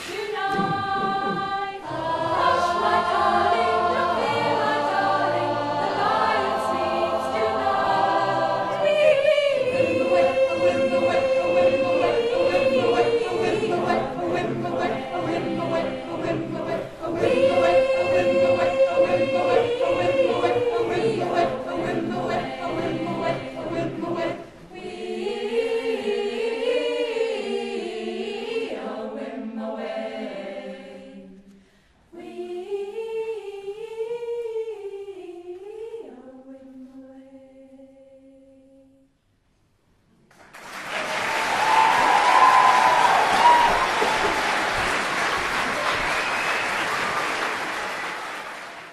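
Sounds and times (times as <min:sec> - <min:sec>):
choir singing: 0:00.0 - 0:31.5, 0:32.1 - 0:38.9, 0:40.9 - 0:48.9
applause: 0:40.3 - 0:48.9.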